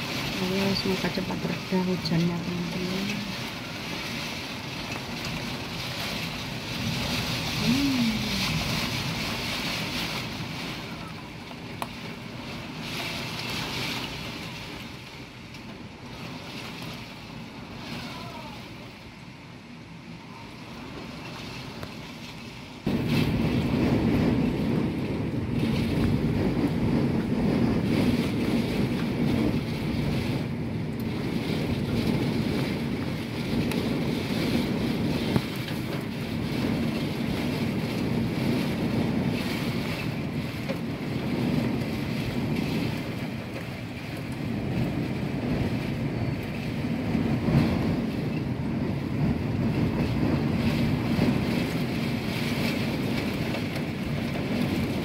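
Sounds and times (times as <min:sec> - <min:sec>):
wind and heavy rain behind window: 0:00.0 - 0:55.0.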